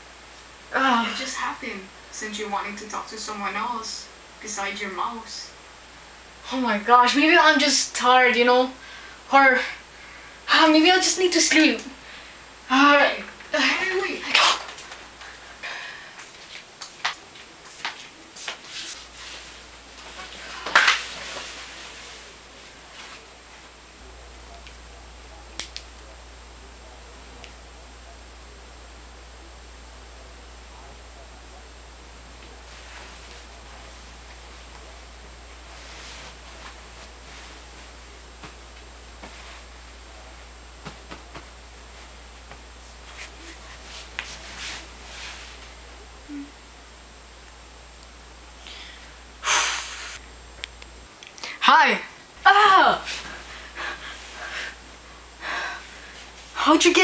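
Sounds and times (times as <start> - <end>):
steady hiss: 0.0 - 57.0
bedding and mattress rustling: 16.2 - 23.7, 32.5 - 46.0.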